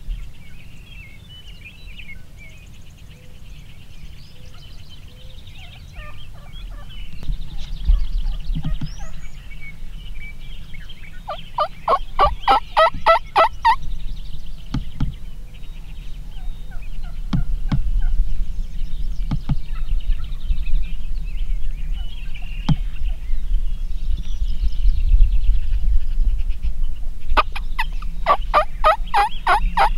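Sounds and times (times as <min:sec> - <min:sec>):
songbirds chirping: 0:00.0 - 0:29.9
turkey gobbling: 0:05.5 - 0:09.3, 0:11.3 - 0:13.8, 0:27.4 - 0:29.9.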